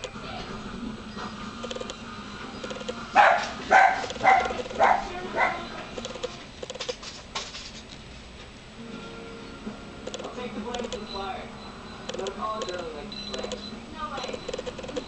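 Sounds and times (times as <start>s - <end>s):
animal barking calls: 2.6s - 6.0s.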